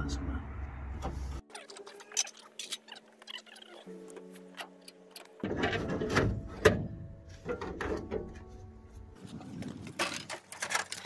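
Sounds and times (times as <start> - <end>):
metal panel clattering and scraping: 5.4 - 8.6.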